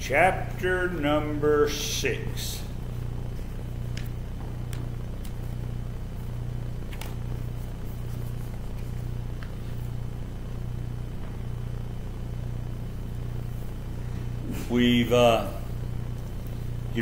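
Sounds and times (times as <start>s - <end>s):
steady low hum: 0.0s - 17.0s
paper pages rustling: 6.8s - 10.0s.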